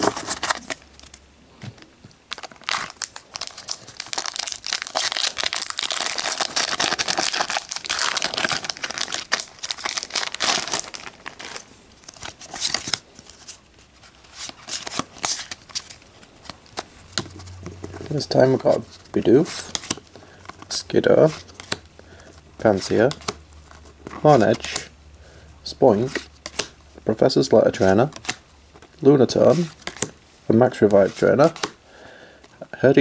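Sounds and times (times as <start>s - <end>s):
cards being handled: 0.0s - 24.9s, 26.0s - 26.8s, 27.7s - 31.8s
foil wrapper tearing and crinkling: 2.3s - 13.0s.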